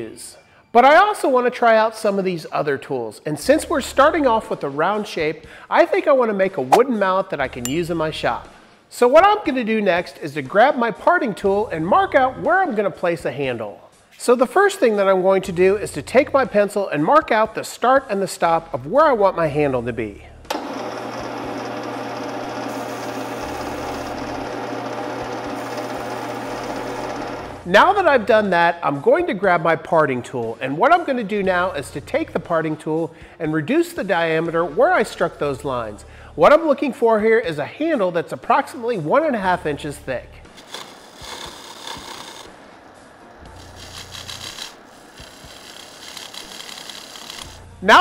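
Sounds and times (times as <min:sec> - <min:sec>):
wood lathe motor whine: 0:20.5 - 0:27.7, 0:40.6 - 0:42.6, 0:43.5 - 0:47.6.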